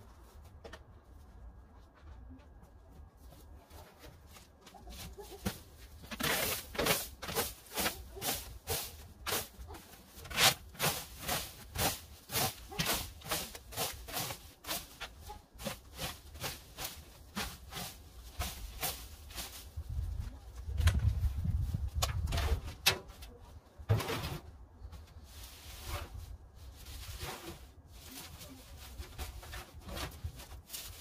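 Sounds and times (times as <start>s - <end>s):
leaf rake scraping grass: 6.0s - 19.8s, 25.2s - 31.0s.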